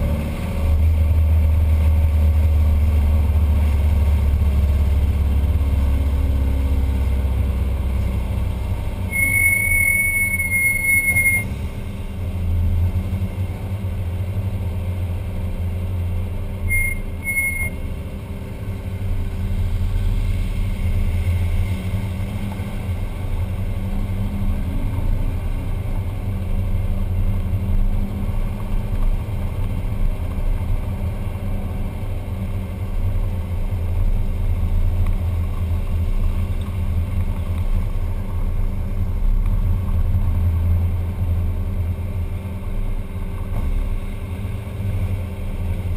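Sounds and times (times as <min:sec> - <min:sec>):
engine running as vehicle rolls: 0:00.0 - 0:45.9
high brake squeals: 0:09.0 - 0:11.6, 0:16.6 - 0:17.8.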